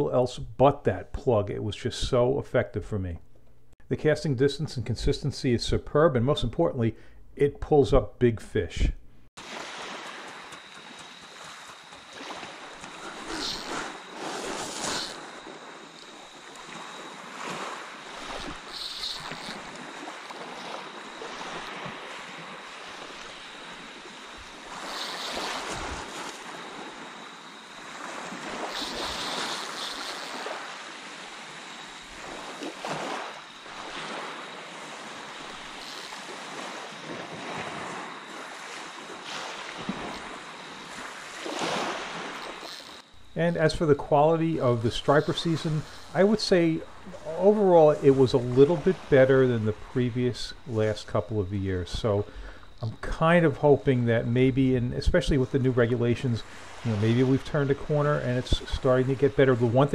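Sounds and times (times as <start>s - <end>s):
small waves lapping on beach: 9.4s - 51.2s, 55.1s - 59.9s.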